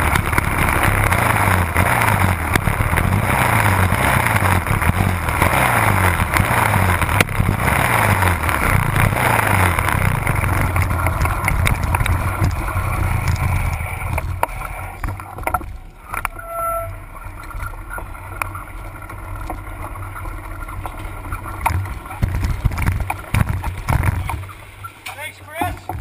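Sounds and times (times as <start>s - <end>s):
motorcycle engine running: 0.0s - 26.0s
wind noise on microphone: 21.6s - 24.5s.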